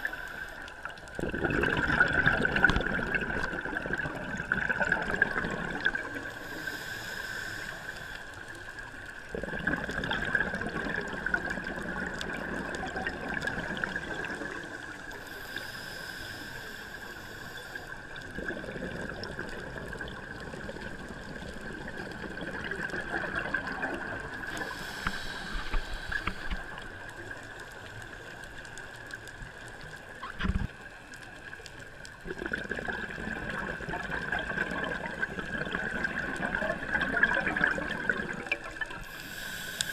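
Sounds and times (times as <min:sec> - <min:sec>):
regulator inhale hiss: 0:00.0 - 0:00.9, 0:06.2 - 0:08.8, 0:14.9 - 0:18.2, 0:24.4 - 0:27.0, 0:38.9 - 0:39.9
exhaled bubbles gurgling: 0:00.0 - 0:07.8, 0:08.7 - 0:15.6, 0:17.9 - 0:39.6.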